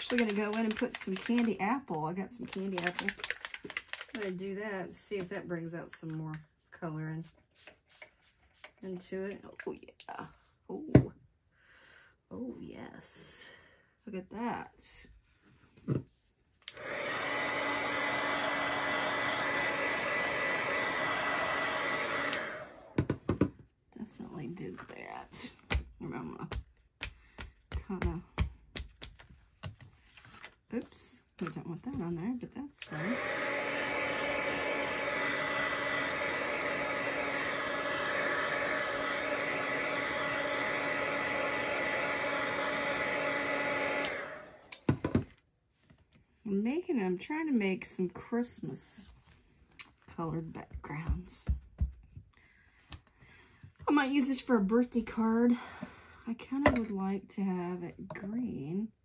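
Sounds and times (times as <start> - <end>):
heat gun blowing: 0.0 - 1.6, 16.7 - 23.0, 32.8 - 44.9.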